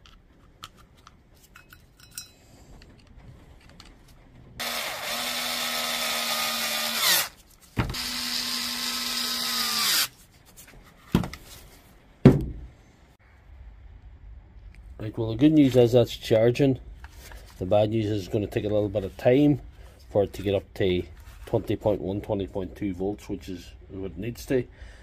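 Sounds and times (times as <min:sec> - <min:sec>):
drill-driver motor whine: 0:04.6 - 0:07.3, 0:07.9 - 0:10.1
sharp knocks: 0:12.2 - 0:12.8.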